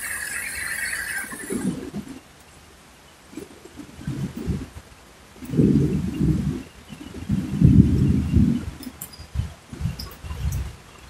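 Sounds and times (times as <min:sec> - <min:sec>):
pigeon cooing: 0:00.0 - 0:02.0.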